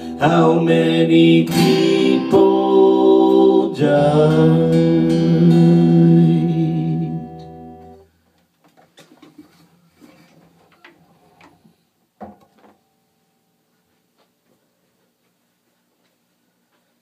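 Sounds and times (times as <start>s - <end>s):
acoustic guitar chord ringing: 0.0s - 8.0s
handling and shuffling noises: 8.2s - 12.8s, 13.6s - 17.0s.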